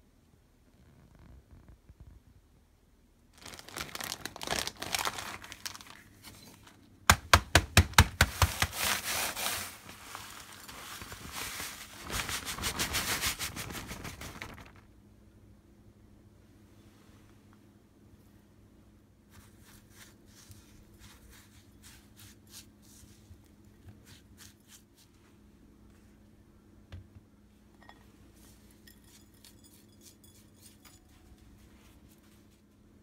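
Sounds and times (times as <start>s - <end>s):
plastic bag of crumbs crinkling: 3.3s - 6.6s, 8.2s - 14.9s.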